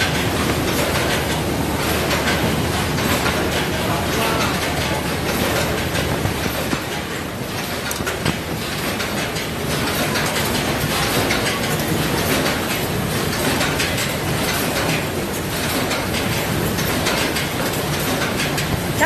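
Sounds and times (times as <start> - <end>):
conveyor machinery rattling: 0.0 - 19.0.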